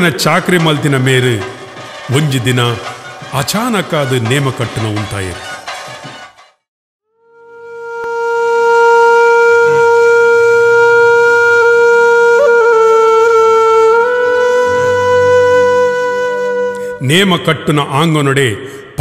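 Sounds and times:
double-reed wind instrument note: 7.0 - 17.0.

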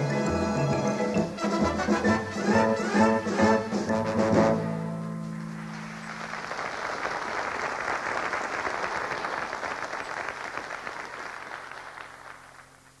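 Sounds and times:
studio audience applauding: 5.4 - 13.0.

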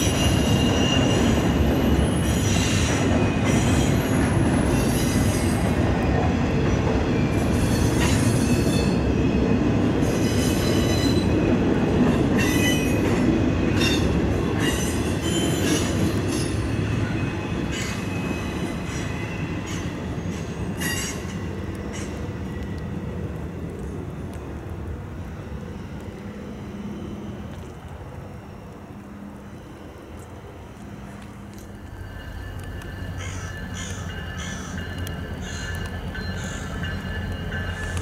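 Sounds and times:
high wheel squeals: 0.0 - 5.7, 13.7 - 19.9
freight train rumbling on rails: 0.0 - 38.0.

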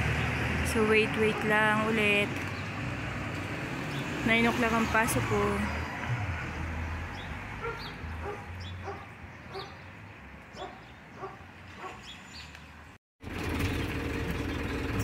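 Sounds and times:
dog barking: 7.6 - 9.8, 10.6 - 12.0
bus running from inside: 13.2 - 15.0.

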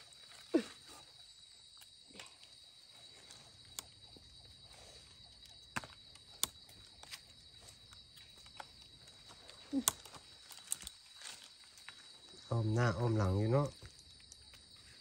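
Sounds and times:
high insect drone: 0.0 - 15.0
dry leaves crackling: 7.5 - 12.4.

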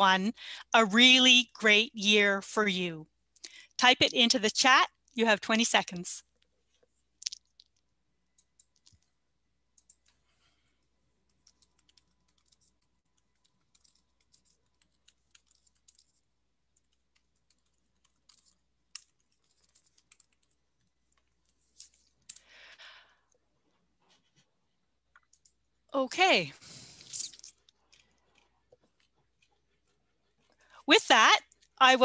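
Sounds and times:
keyboard typing: 7.3 - 10.4, 11.1 - 22.7.

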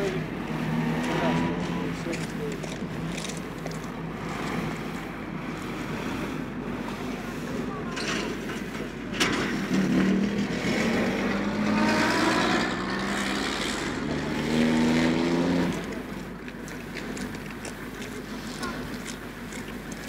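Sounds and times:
vehicle engine passing: 0.0 - 6.8, 9.4 - 16.4
street hum: 0.0 - 20.0.

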